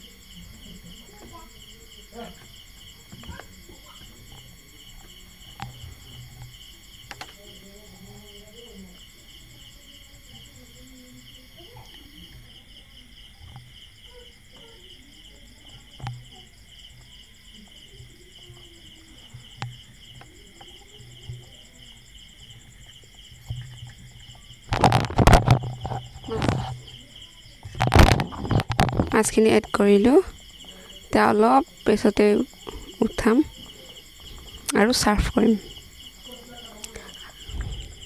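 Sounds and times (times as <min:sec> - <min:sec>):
crickets chirping: 0:00.0 - 0:38.0.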